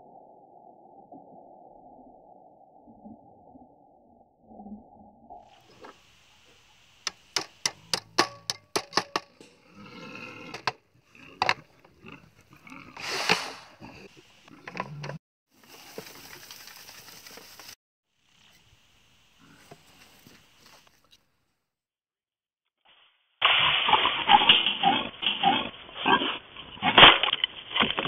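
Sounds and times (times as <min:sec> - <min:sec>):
hand tool knocking into ground: 0:07.0 - 0:09.6
scraping of soil: 0:07.0 - 0:17.8.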